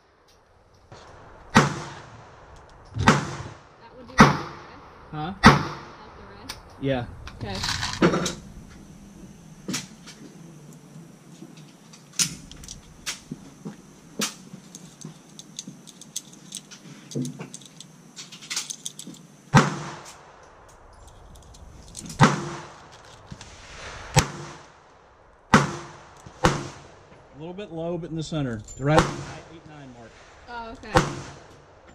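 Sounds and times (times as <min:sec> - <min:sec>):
pistol shots with echo: 0:05.4 - 0:06.0, 0:19.5 - 0:20.4, 0:22.1 - 0:22.8, 0:25.5 - 0:26.9
cartridges clicking into magazine: 0:14.2 - 0:19.2.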